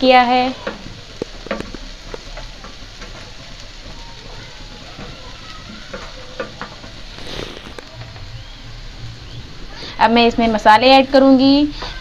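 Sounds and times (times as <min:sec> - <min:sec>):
oil crackles: 0:00.0 - 0:12.0
vegetables sizzling in hot oil: 0:00.0 - 0:12.0.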